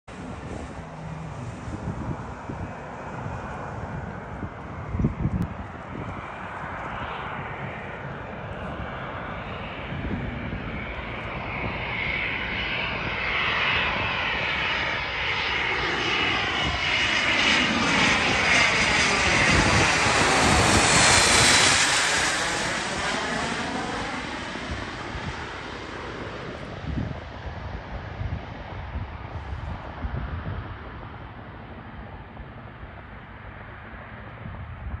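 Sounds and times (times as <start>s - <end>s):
high jet whine: 0.1s - 27.4s
jet passing overhead: 0.1s - 34.9s.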